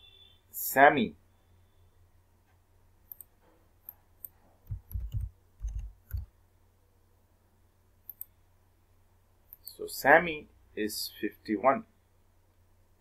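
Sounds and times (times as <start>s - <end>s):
mouse clicks: 3.1s - 6.3s, 8.0s - 8.4s
keyboard keystrokes: 4.6s - 6.3s.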